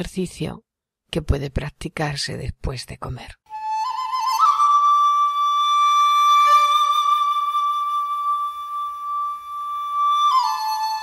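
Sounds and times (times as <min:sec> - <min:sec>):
flute-like long note: 0:03.5 - 0:11.0.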